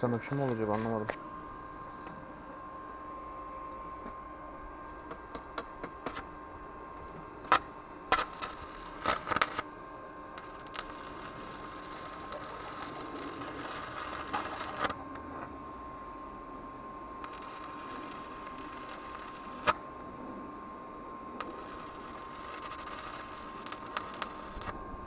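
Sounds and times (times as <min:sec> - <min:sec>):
welding arc crackling: 0:07.4 - 0:09.7, 0:10.3 - 0:15.0, 0:17.2 - 0:19.8, 0:21.4 - 0:24.8.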